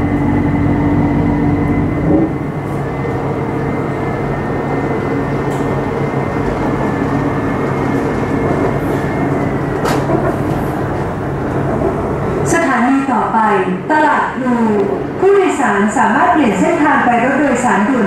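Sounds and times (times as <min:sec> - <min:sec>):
wheel-on-rail noise: 0:00.0 - 0:12.6.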